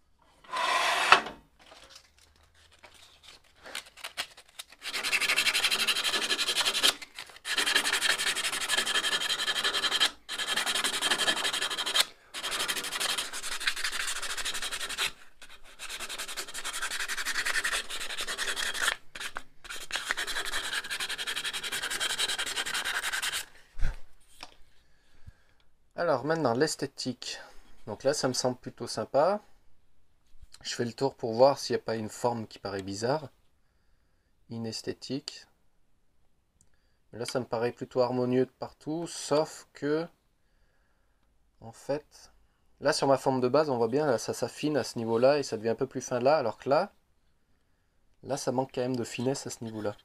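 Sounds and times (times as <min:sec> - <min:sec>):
sandpaper rubbing on wood: 0:00.5 - 0:01.2, 0:04.8 - 0:06.9, 0:07.5 - 0:23.5.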